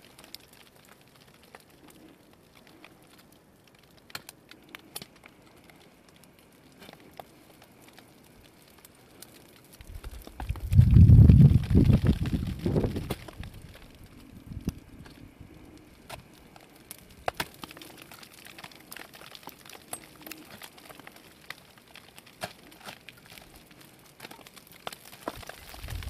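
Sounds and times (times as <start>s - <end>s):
low rumble: 9.8s - 15.6s.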